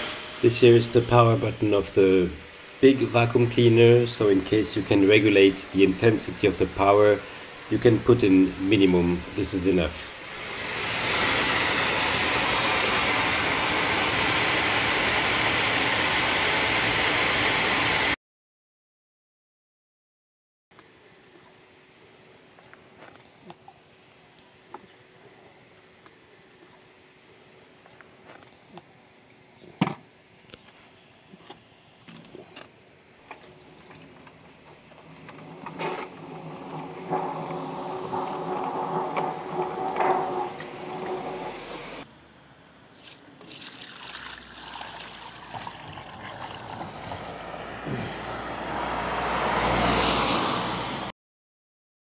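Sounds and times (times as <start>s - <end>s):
wet and dry vacuum cleaner: 0.0s - 18.2s, 34.8s - 42.0s, 45.5s - 51.1s
hose sucking up water: 33.3s - 42.0s, 43.0s - 47.6s.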